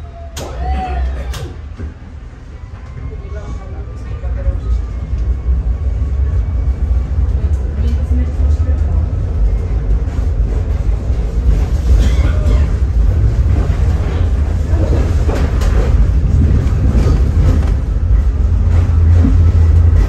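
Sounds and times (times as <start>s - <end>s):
tram wheels rumbling on rails: 0.0s - 20.0s.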